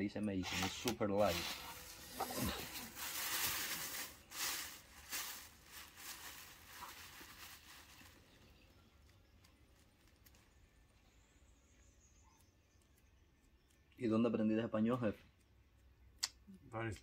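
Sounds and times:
rustling and crinkling: 0.4s - 11.0s.

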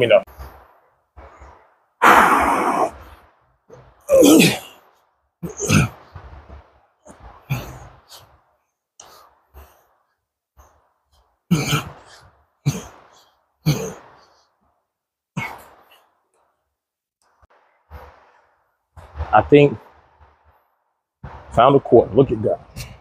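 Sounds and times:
man exhaling forcefully: 2.0s - 3.0s
faint breathing: 7.4s - 11.3s.

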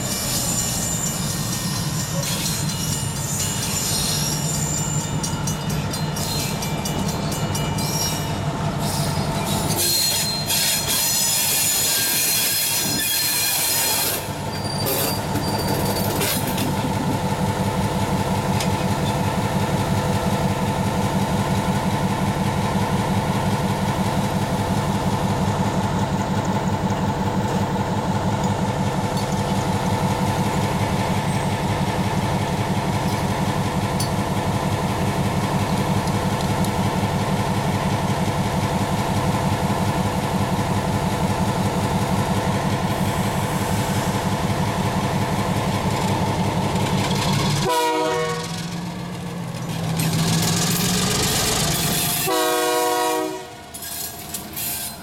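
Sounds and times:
high-pitched wheel squeal: 0.0s - 5.2s, 7.8s - 16.4s
diesel locomotive engine throbbing: 0.0s - 55.0s.

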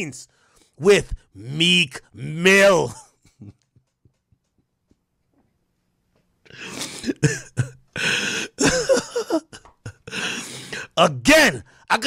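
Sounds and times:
man laughing: 2.7s - 4.7s, 6.7s - 11.0s.

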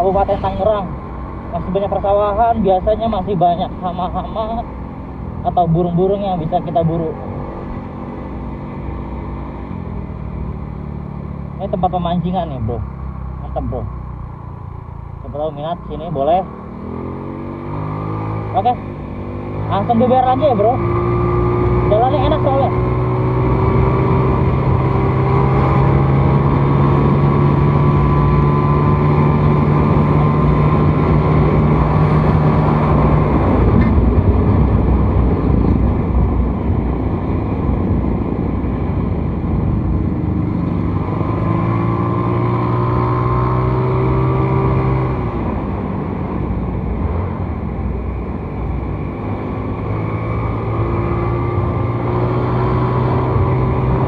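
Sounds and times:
road noise: 0.0s - 54.0s
rushing wind: 22.6s - 54.0s.

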